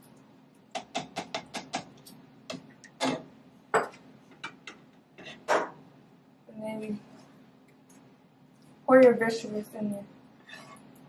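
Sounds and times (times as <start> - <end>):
utensil knocking against cookware: 0.8 - 1.9.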